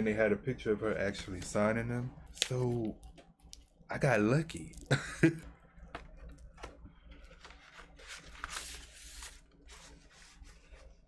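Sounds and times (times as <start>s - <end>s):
paper and cardboard rustling: 6.6s - 11.0s.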